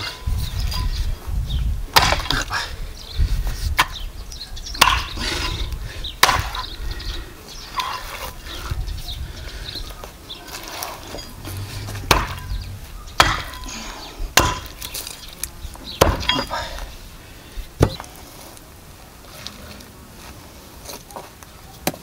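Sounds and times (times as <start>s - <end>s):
axe chopping on wood: 1.9s - 2.5s, 4.8s - 5.2s, 6.2s - 6.6s, 12.0s - 12.6s, 13.2s - 13.7s, 14.4s - 15.0s, 16.0s - 16.5s, 17.8s - 18.1s.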